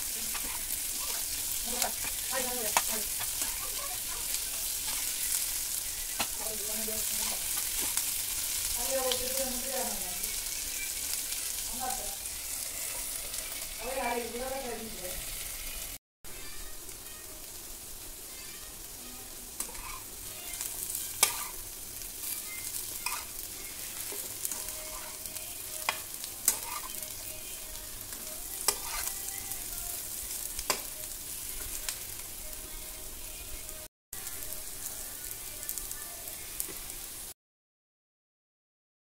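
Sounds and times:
potatoes sizzling in oil: 0.0 - 37.4
spatula tapping and scraping pan: 0.3 - 5.4, 6.1 - 6.4, 7.2 - 8.1, 19.6 - 20.0, 20.6 - 21.6, 23.0 - 25.2, 25.8 - 27.0, 28.1 - 29.2, 30.5 - 30.9.

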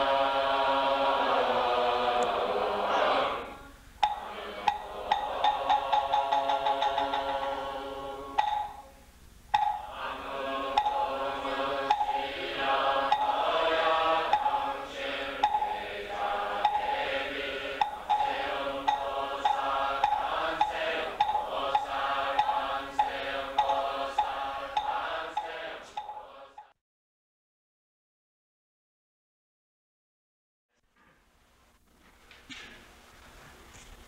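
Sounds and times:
voices chanting in unison: 0.0 - 8.9, 9.6 - 26.8
sharp rhythmic knocks: 4.0 - 26.7.

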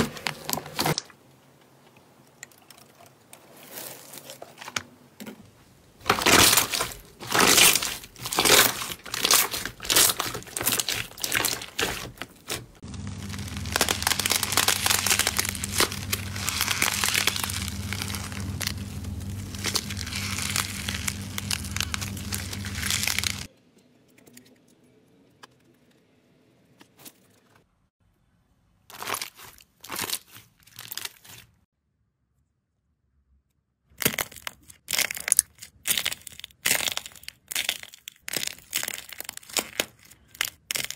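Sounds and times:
steady low hum: 12.6 - 23.5.

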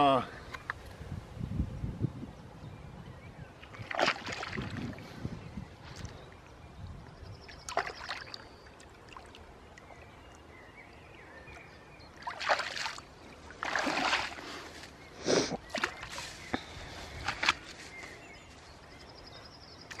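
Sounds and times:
water splashing and sloshing: 3.6 - 5.1, 7.4 - 10.6, 11.4 - 18.2.

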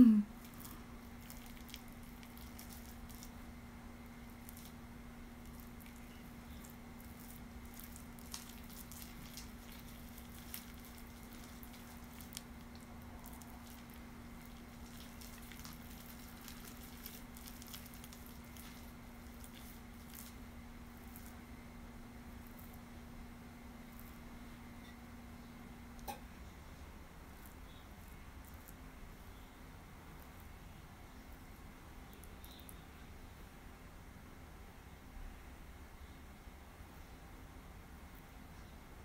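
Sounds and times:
steady low hum: 0.0 - 39.0
wet squishing of paste in hair: 0.4 - 3.4, 4.2 - 4.8, 5.4 - 21.4.

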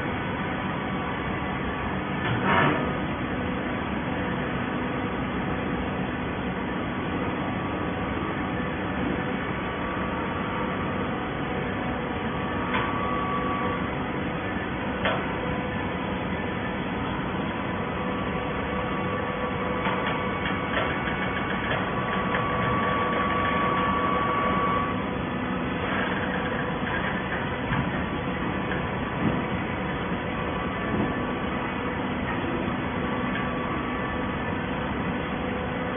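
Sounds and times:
hydraulic baler motor hum: 0.0 - 35.9
high-pitched whine: 7.9 - 26.4.

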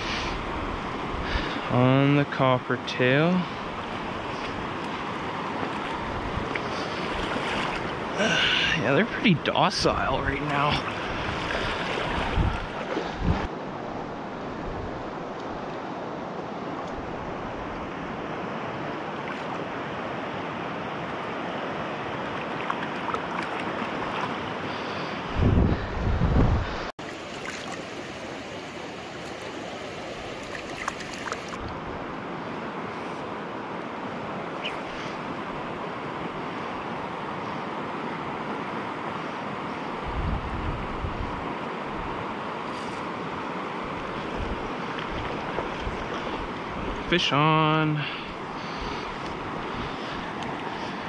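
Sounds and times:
stream rushing over gravel: 1.2 - 13.5, 27.0 - 31.6
wind buffeting microphone: 5.8 - 8.2, 10.8 - 15.2, 25.2 - 26.9, 40.0 - 42.3, 43.9 - 47.1.

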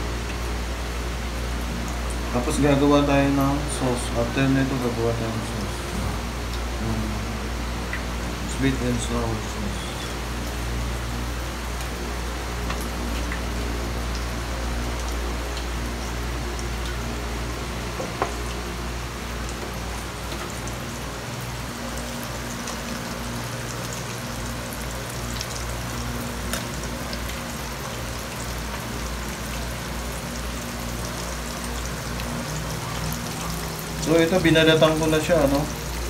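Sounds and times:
shrimp sizzling in oil: 9.6 - 36.0.

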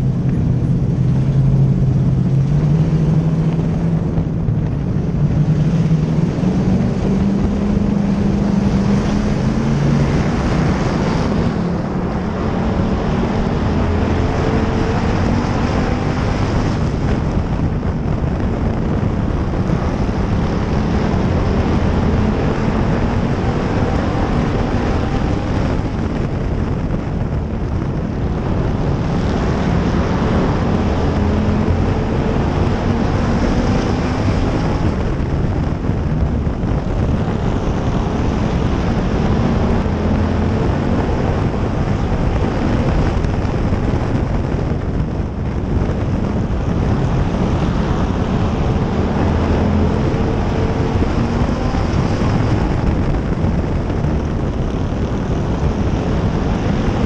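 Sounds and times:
race car engine running hard: 0.0 - 57.0.

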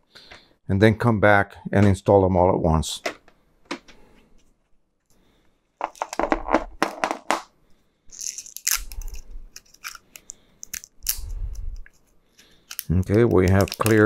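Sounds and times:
plastic wrapper tearing: 8.1 - 11.3, 12.7 - 14.0.

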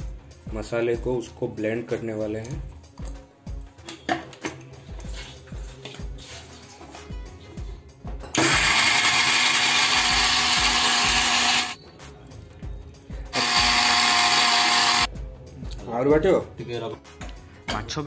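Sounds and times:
mixer grinder whirring: 8.4 - 11.8, 13.3 - 15.1.

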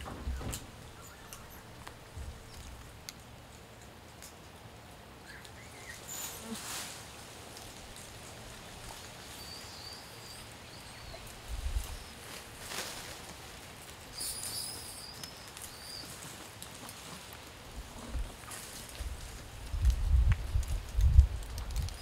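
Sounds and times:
rustle: 0.0 - 22.0
faint bird chirps: 14.2 - 16.2.

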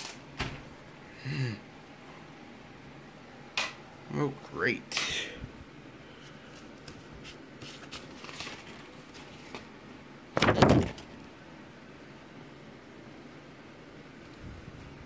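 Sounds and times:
paper pages rustling: 6.5 - 9.8, 10.4 - 11.2.

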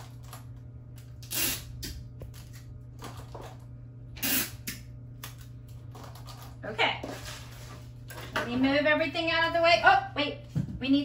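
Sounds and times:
tape tearing off dispenser: 1.0 - 2.7, 4.2 - 5.5.

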